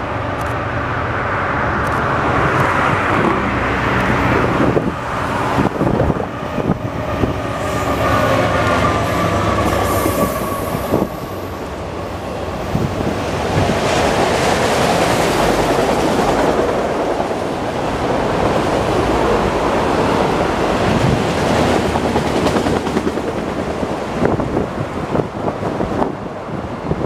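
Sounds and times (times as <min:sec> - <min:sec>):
train wheels roaring on rail: 0:00.0 - 0:27.0
train clicks and knocks: 0:12.7 - 0:19.4, 0:20.2 - 0:26.2.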